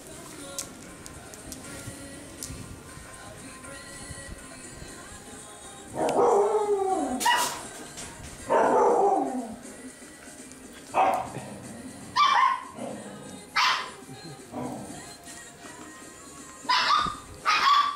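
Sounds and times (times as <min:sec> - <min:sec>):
puppies yapping: 0:16.7 - 0:17.9.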